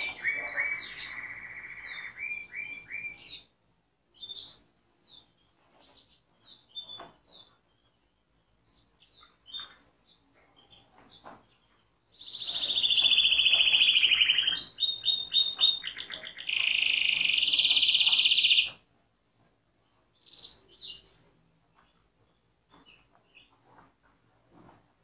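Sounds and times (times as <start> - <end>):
canary chirping and trilling: 0.0 - 24.8.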